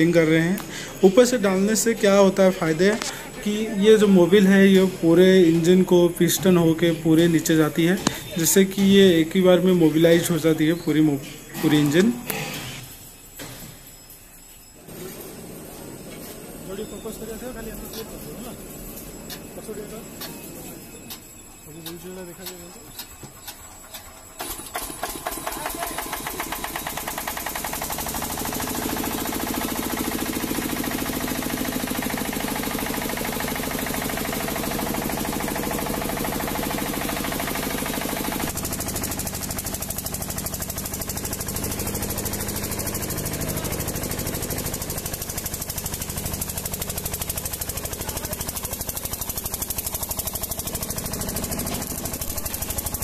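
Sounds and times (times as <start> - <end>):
diesel engine knocking: 21.1 - 53.0.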